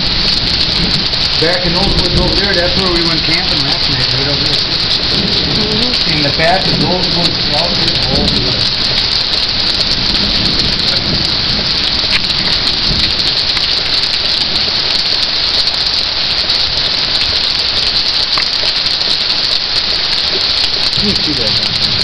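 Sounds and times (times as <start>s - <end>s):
drop ticking: 0.0s - 16.0s
heavy rain: 0.0s - 22.0s.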